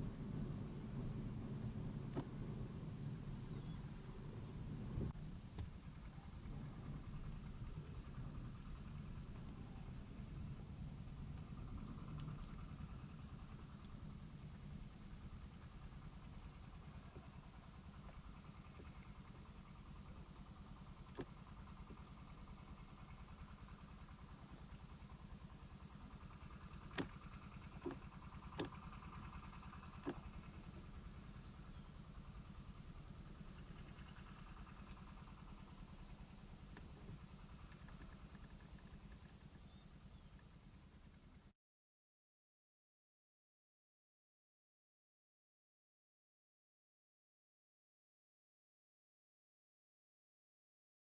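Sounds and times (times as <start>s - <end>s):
engine-like rumble: 0.0s - 41.5s.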